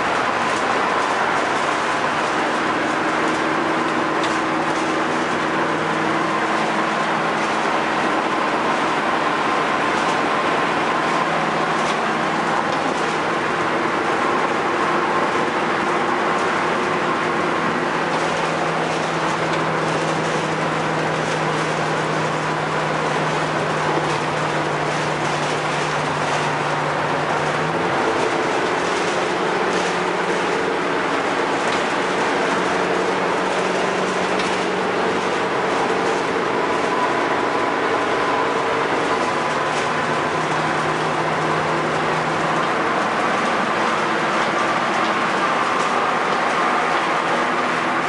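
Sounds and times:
engine droning: 0.0s - 48.0s
road and wind noise: 0.0s - 48.0s.

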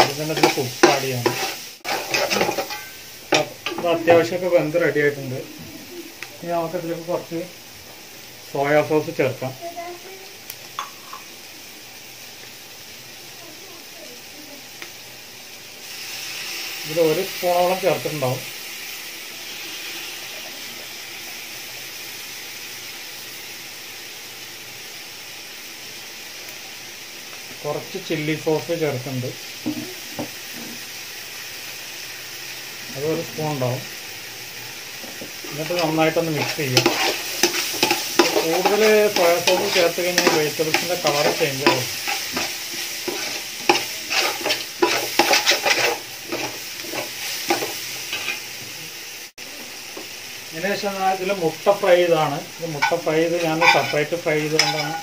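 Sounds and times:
metal spatula scraping pot: 0.0s - 3.9s, 35.5s - 48.4s, 52.8s - 55.0s
vegetables sizzling in a metal pot: 0.0s - 55.0s.

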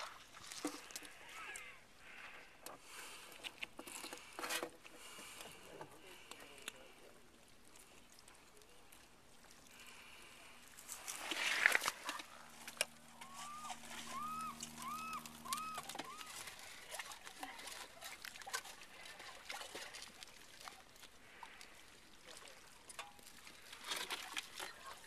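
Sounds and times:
hand scooping wet sand and water: 0.0s - 1.4s, 2.0s - 25.0s
short rising-and-falling calls: 13.1s - 16.4s.

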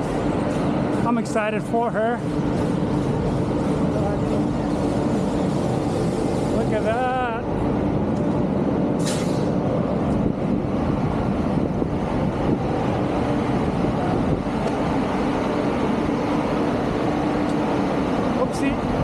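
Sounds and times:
locomotive hum and mechanical rumble: 0.0s - 19.0s
short hiss: 9.0s - 9.5s.

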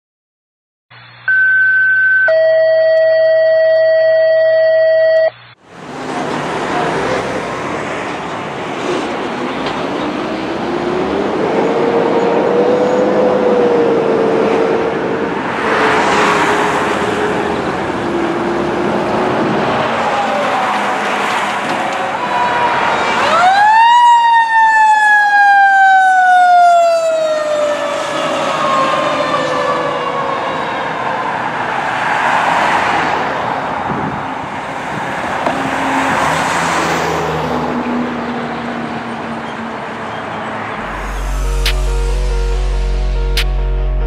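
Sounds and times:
passing road traffic: 5.5s - 44.0s
fire engine siren wailing: 10.1s - 32.1s, 40.8s - 44.0s
electronic tones: 40.8s - 44.0s.

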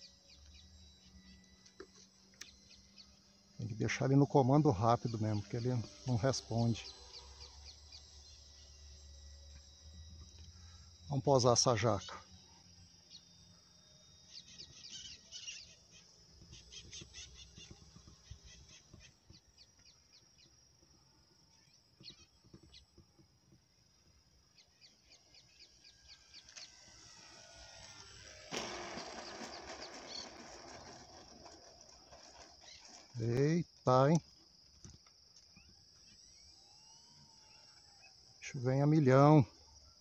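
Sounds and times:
birds chirping: 0.0s - 9.2s, 14.2s - 23.0s, 24.0s - 27.7s, 28.5s - 34.8s
insects chirping: 0.0s - 40.0s
model airplane engine: 0.0s - 40.0s.

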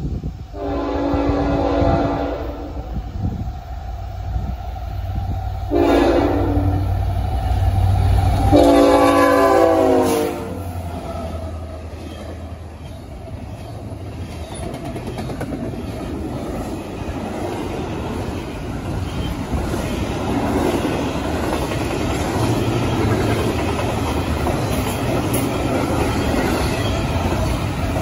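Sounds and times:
train wheels on rails: 0.0s - 28.0s
locomotive air horn blasts: 0.5s - 2.9s, 5.7s - 6.9s, 8.4s - 10.7s.

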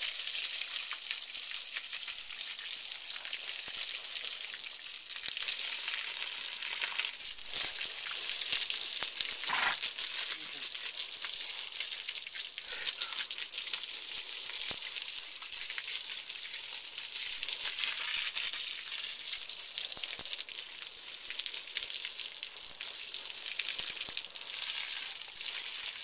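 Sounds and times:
hose water spraying: 9.2s - 10.7s.

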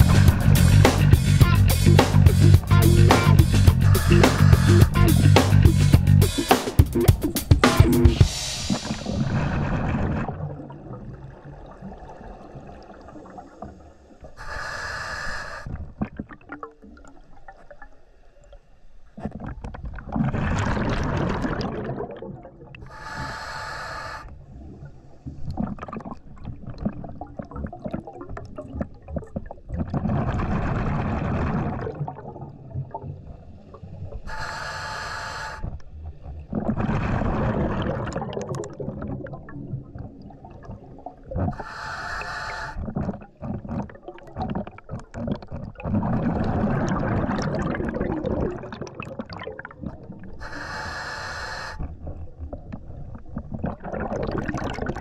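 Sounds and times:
regulator breathing hissing inhale: 3.2s - 7.0s, 8.1s - 9.7s, 13.2s - 15.8s, 22.8s - 25.5s, 34.2s - 35.8s, 41.5s - 42.8s, 50.4s - 51.9s
exhaust bubbles gushing: 19.4s - 22.8s, 36.5s - 41.4s, 43.0s - 50.3s, 53.1s - 55.0s.

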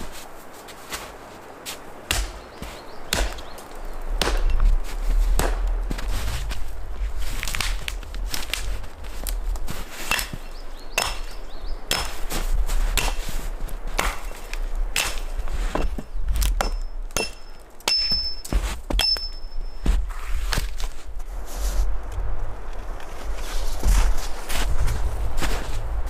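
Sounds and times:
hatchet chopping a branch: 2.1s - 3.6s, 4.2s - 4.6s, 5.4s - 5.6s, 10.1s - 12.4s, 13.0s - 13.3s, 14.0s - 14.4s, 15.0s - 19.4s.

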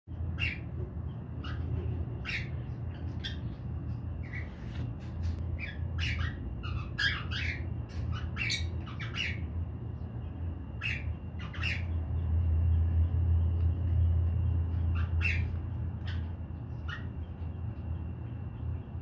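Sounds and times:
cockatiel squawking: 5.6s - 9.4s, 10.8s - 12.0s, 14.9s - 17.1s.

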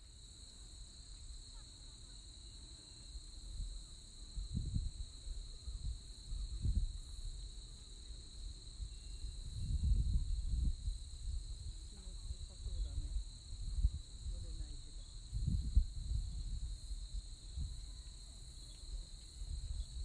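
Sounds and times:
insects chirring: 0.0s - 20.0s
wind gusting on microphone: 3.5s - 7.5s, 8.7s - 18.0s, 18.9s - 20.0s.

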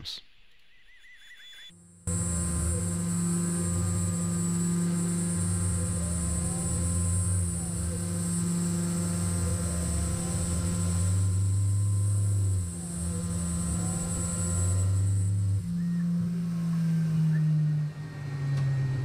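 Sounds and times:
mill spindle whining: 1.7s - 19.0s
end mill cutting brass: 1.8s - 16.5s.

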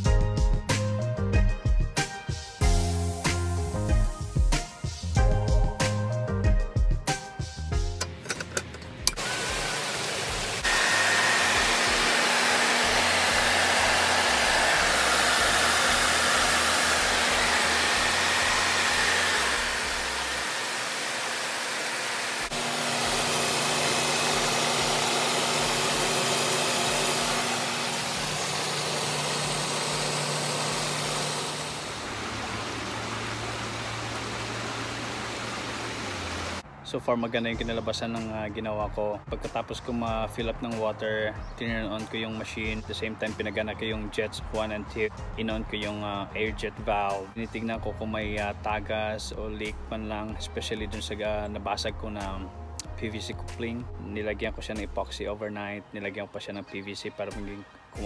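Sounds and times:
pump motor hum: 9.0s - 36.6s
hot tub jets churning water: 9.1s - 36.6s.

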